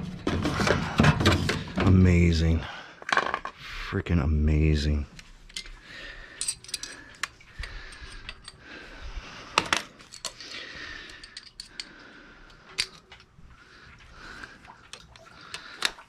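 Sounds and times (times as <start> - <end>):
metal tools clinking on floor: 5.5 - 8.6, 11.1 - 11.9.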